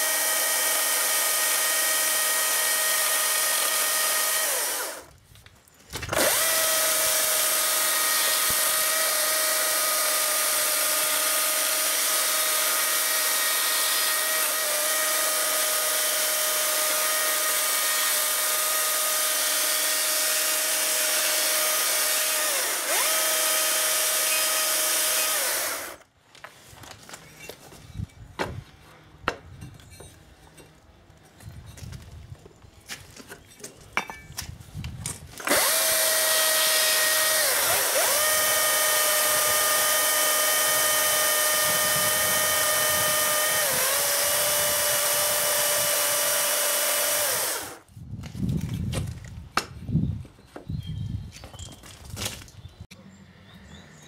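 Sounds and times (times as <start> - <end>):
chainsaw cutting wood: 0.0 - 5.2, 6.0 - 26.1, 35.4 - 47.9.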